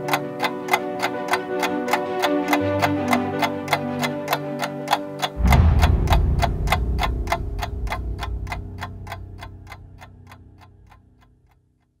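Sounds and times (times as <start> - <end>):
clock ticking: 0.0 - 12.0
low steady drone: 5.4 - 11.6.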